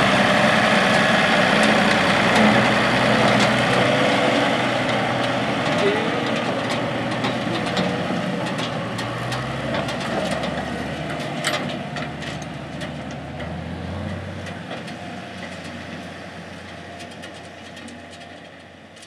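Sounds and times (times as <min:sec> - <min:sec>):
tractor engine running: 0:00.0 - 0:19.0
wagon rattling and knocking: 0:04.7 - 0:16.1.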